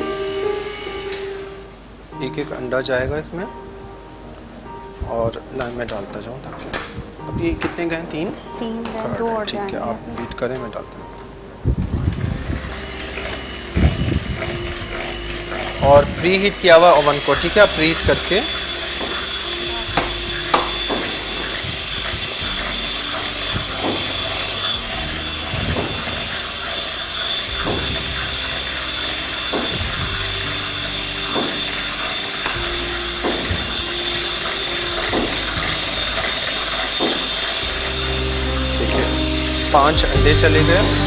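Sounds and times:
electric hand mixer whirring: 0:00.0 - 0:03.4, 0:11.6 - 0:41.0.

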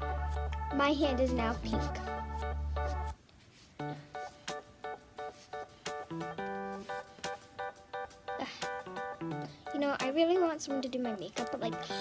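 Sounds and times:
light instrumental tune: 0:00.0 - 0:03.2, 0:03.8 - 0:09.9.

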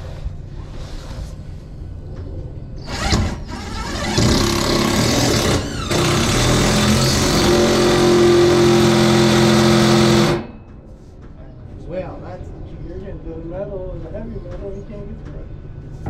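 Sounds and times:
cordless drill drilling into steel: 0:02.8 - 0:10.5.

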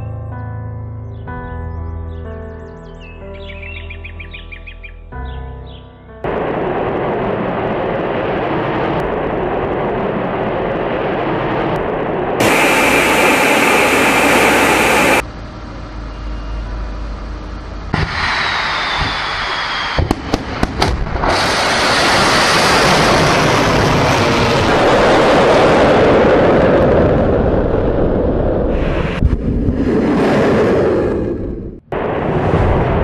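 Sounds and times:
jet engine roar: 0:06.2 - 0:33.0
low rumble: 0:06.2 - 0:33.0
rocket motor roar: 0:06.3 - 0:33.0
sharp cracks: 0:18.0 - 0:22.3.

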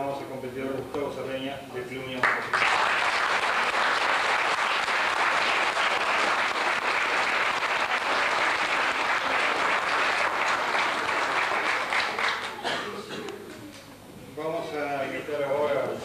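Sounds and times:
audience clapping: 0:02.2 - 0:12.7.

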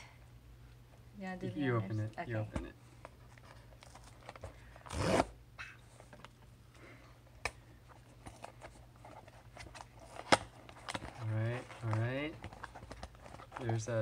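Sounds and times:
packing tape ripped off box: 0:03.8 - 0:05.4
cardboard clicks and rustles: 0:08.0 - 0:14.0.

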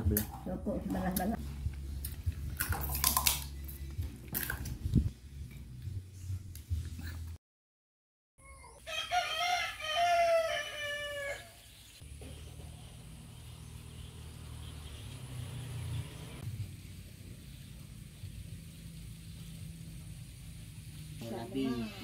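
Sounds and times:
rooster crowing: 0:08.8 - 0:11.6.

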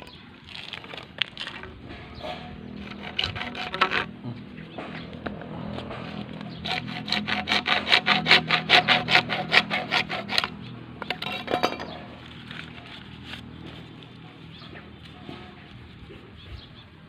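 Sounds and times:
hacksaw cutting plastic pipe: 0:02.2 - 0:12.0.

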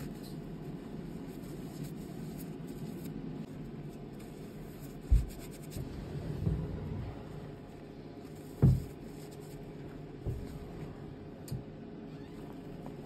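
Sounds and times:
dull thumps: 0:08.6 - 0:09.0, 0:10.2 - 0:10.8.

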